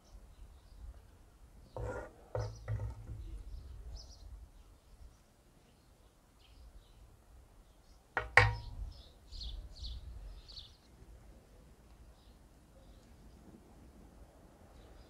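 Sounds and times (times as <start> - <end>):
small birds chirping: 0.0 - 10.9
wooden spatula knocking grill pan: 1.8 - 3.4, 8.2 - 8.8.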